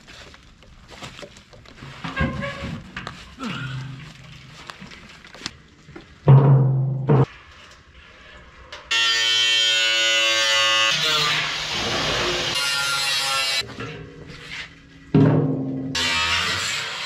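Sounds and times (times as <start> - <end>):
steel barrel set down on concrete: 15.1 - 16.0.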